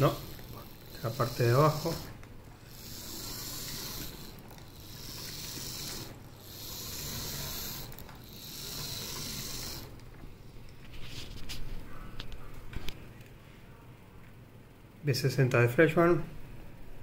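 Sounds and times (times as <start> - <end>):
model locomotive motor whirring: 0.0 - 10.2.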